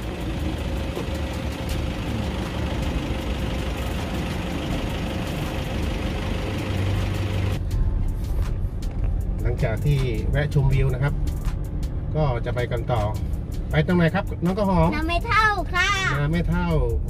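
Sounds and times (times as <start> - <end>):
tyres hissing on road: 0.0 - 7.6
car engine rumble: 0.0 - 17.0.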